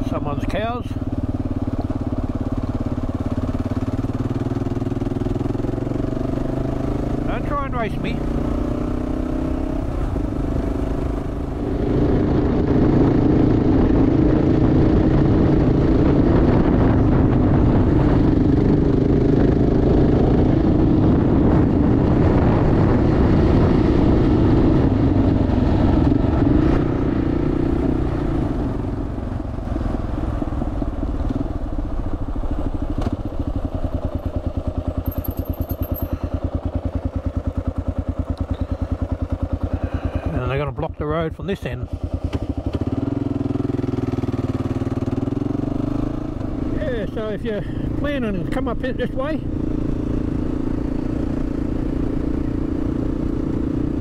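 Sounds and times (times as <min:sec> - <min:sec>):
motorcycle engine running: 0:00.0 - 0:54.0.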